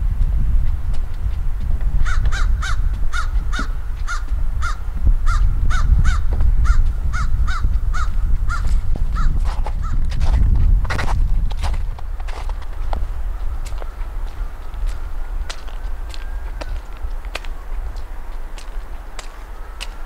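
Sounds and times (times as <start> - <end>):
steady low rumble: 0.0 - 19.7
crows cawing: 2.0 - 10.0, 13.5 - 17.0.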